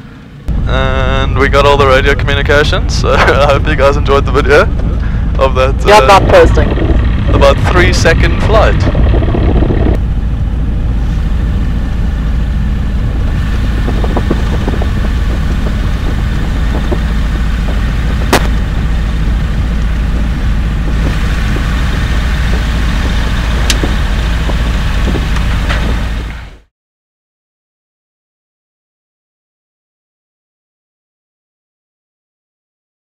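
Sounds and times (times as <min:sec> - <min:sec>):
aircraft engine rumbling: 0:00.0 - 0:26.7
sharp clicks: 0:23.6 - 0:24.0.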